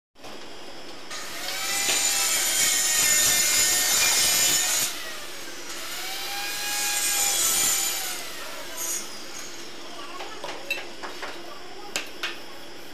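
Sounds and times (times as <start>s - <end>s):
power tool motor whining: 1.1s - 9.6s.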